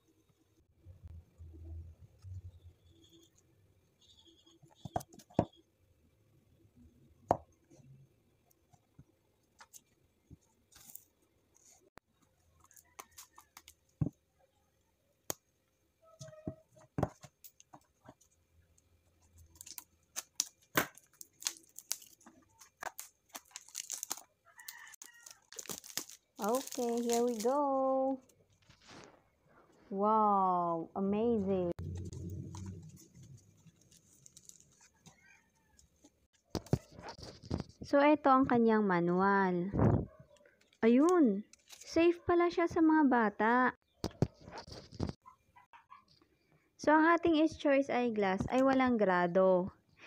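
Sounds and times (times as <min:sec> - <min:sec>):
plastic wrap crinkling and tearing: 0:19.4 - 0:27.9, 0:31.8 - 0:35.4.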